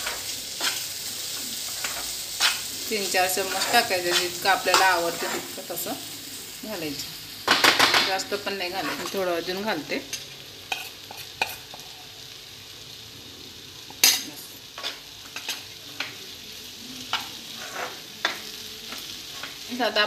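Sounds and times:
food sizzling in oil: 0.0s - 20.0s
metal spoon clinking and scraping: 10.7s - 12.0s, 17.1s - 19.6s.

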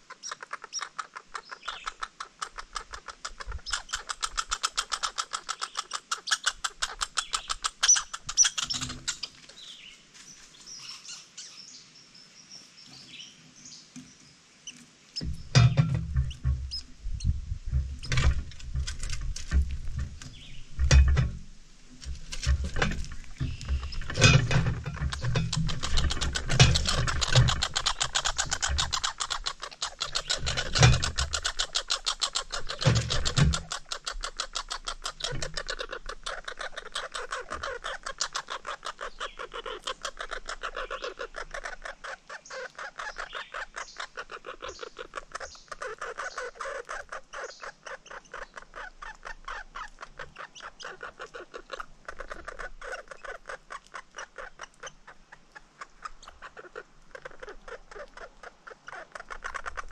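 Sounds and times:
squirrel cracking seed shells: 18.1s - 21.0s, 22.0s - 43.3s, 44.2s - 59.9s.

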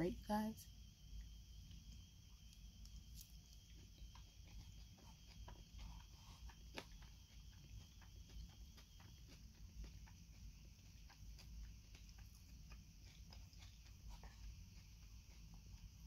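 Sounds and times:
low steady hum: 0.0s - 16.0s
chewing salad crunches: 1.6s - 16.0s.

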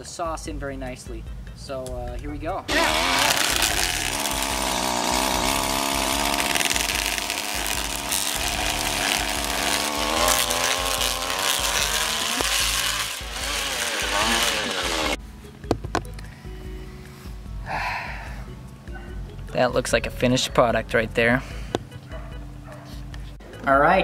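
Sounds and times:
string trimmer running: 2.7s - 15.2s
trimmer churning through spaghetti: 2.7s - 15.2s.

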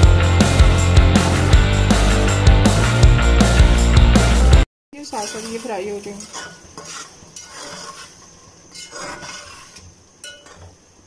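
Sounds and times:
metal spatula scraping cooking pot: 5.0s - 10.7s.

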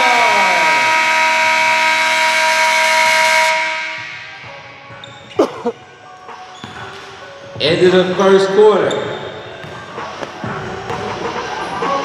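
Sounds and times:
scoreboard horn blast: 0.0s - 4.4s.

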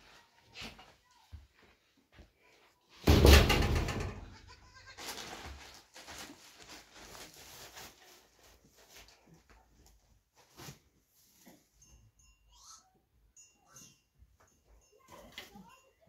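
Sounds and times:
young goat bleating: 4.3s - 5.0s
plastic bag crinkling: 5.0s - 9.2s.

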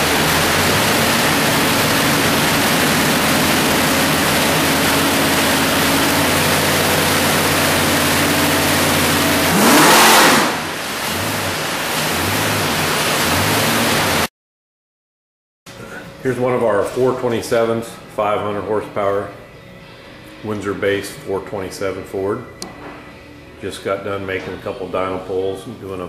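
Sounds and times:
engine running and revving: 0.0s - 14.3s.

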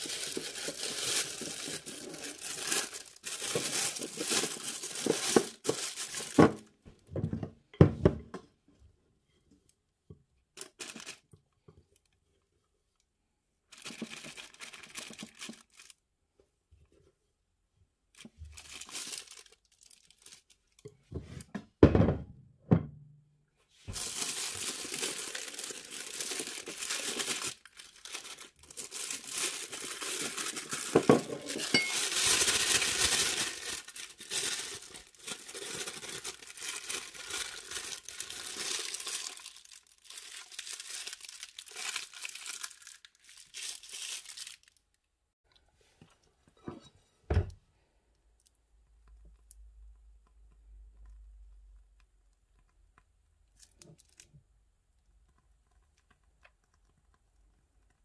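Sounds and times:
plastic bag crinkling: 0.0s - 6.8s, 10.6s - 11.3s, 13.7s - 16.0s, 18.2s - 20.9s, 23.9s - 45.0s.

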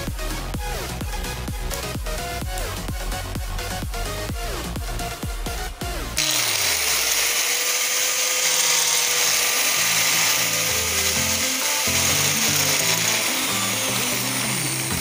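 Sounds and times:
electric grinder motor whining: 6.0s - 15.0s.

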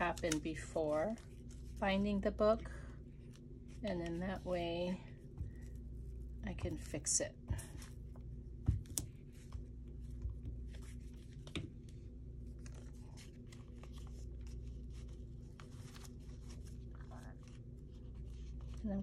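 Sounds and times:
paper rustling: 0.0s - 2.3s, 8.9s - 19.0s
steady low hum: 0.0s - 19.0s.

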